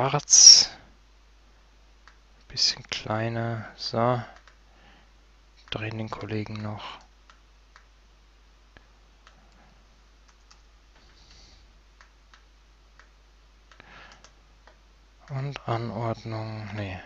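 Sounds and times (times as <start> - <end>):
low steady hum: 0.0 - 17.0
computer mouse clicks: 10.3 - 10.6, 13.7 - 14.8.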